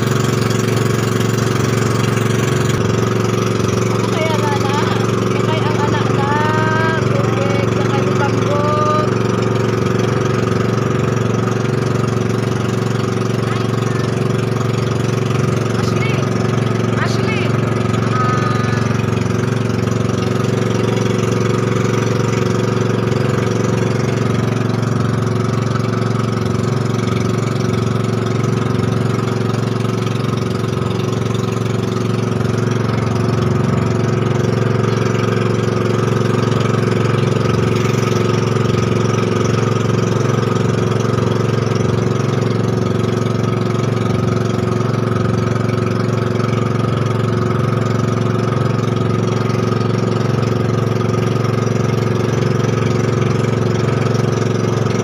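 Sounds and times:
boat engine droning: 0.0s - 55.0s
water rushing against hull: 0.0s - 55.0s.

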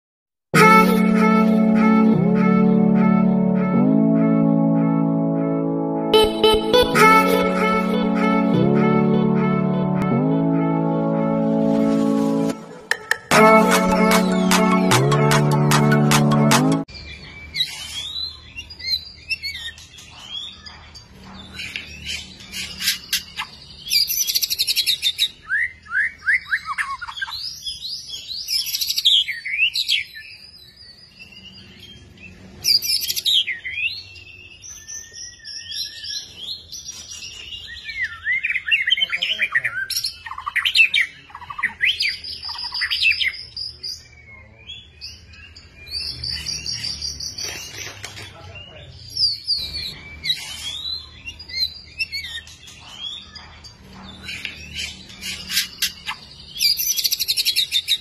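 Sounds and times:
bird singing whistles and trills: 32.7s - 47.9s, 49.0s - 53.5s, 54.2s - 58.0s.

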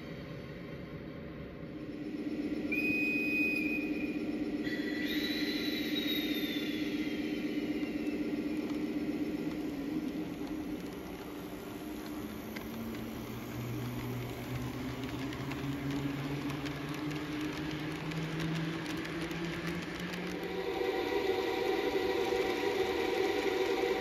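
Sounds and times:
wheels clicking over rail joints: 10.4s - 20.4s.

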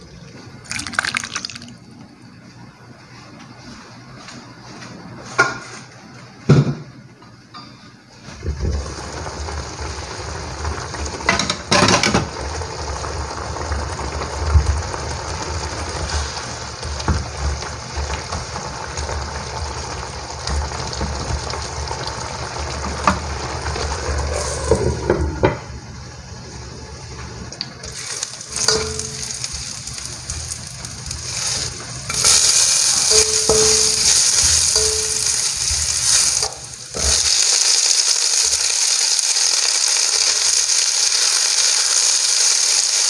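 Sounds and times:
chicken sizzling in a wok: 8.2s - 27.1s, 27.8s - 43.0s.

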